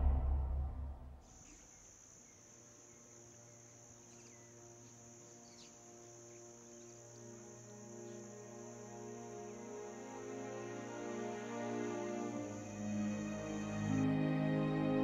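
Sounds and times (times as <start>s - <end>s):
background music: 7.4s - 15.0s.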